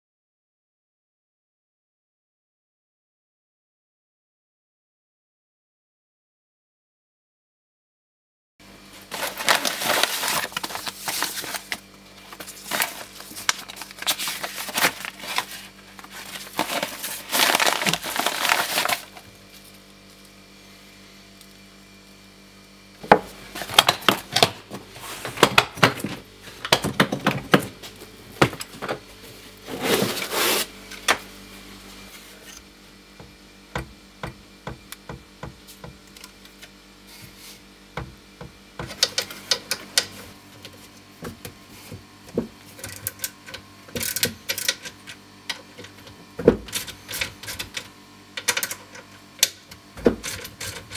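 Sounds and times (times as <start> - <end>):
paper and packaging crinkling: 9.0 - 20.3, 23.4 - 28.8.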